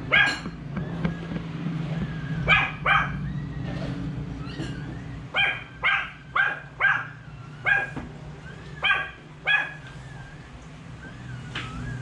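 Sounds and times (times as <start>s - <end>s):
small dog barking: 0.0s - 0.5s, 2.4s - 3.2s, 5.3s - 8.0s, 8.8s - 9.9s.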